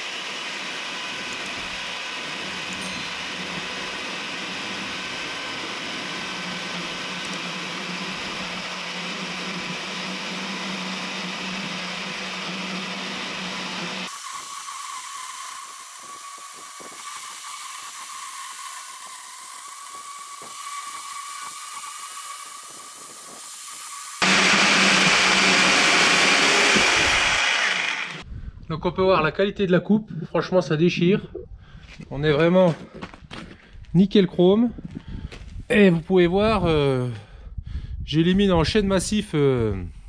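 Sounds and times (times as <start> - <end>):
electric chain saw cutting wood: 0.0 - 28.3.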